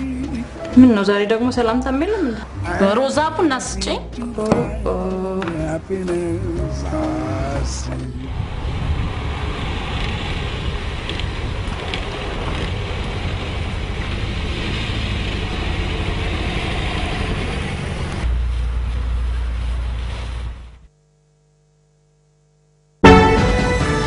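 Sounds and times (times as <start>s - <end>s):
heavy low rumble: 0.0s - 20.9s
car driving on dirt track: 8.3s - 20.4s.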